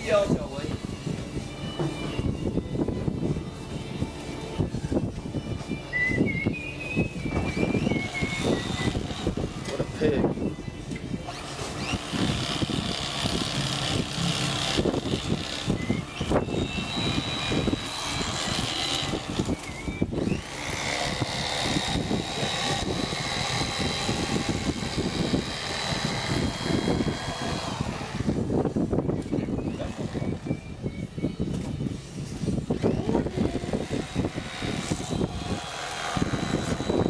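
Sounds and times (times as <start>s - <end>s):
electric fillet knife buzzing: 7.5s - 10.2s, 11.3s - 28.5s, 32.7s - 37.0s.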